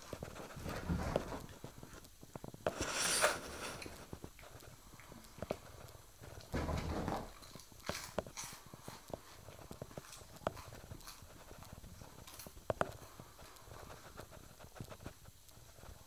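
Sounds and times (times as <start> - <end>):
rabbit hopping thumps: 0.0 - 1.9, 6.3 - 7.6
paws scratching upholstery: 0.0 - 4.8, 5.4 - 16.0.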